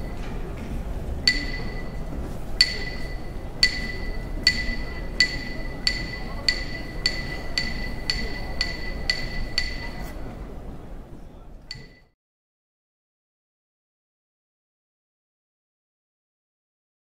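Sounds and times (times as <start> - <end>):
wooden clappers struck together: 1.3 - 2.0, 2.6 - 10.1, 11.7 - 12.1.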